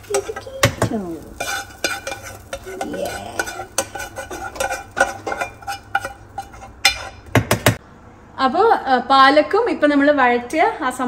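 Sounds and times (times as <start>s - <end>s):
metal spoon scraping saucepan: 0.0s - 7.8s.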